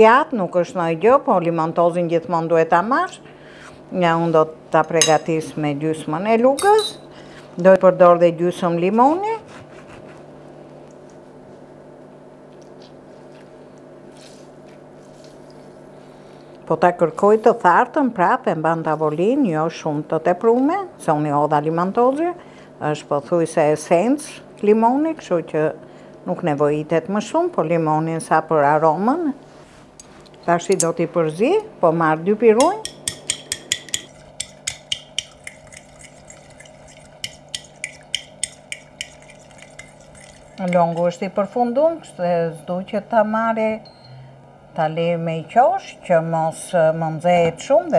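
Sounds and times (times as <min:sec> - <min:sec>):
low electrical hum: 0:00.0 - 0:47.9
fork tines clicking on ceramic bowl: 0:32.6 - 0:40.8
lemon squishing: 0:34.1 - 0:41.2.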